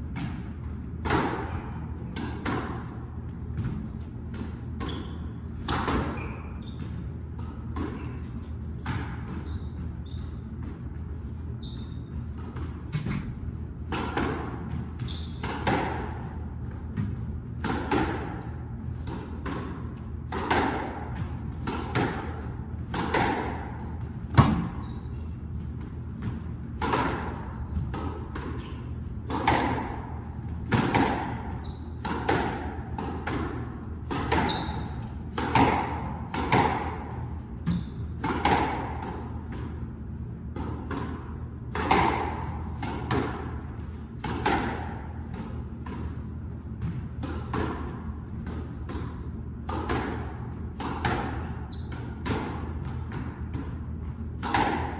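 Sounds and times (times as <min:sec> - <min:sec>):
ball hitting court walls: 0:00.0 - 0:11.0, 0:11.7 - 0:54.9
squash racket strikes: 0:00.0 - 0:54.9.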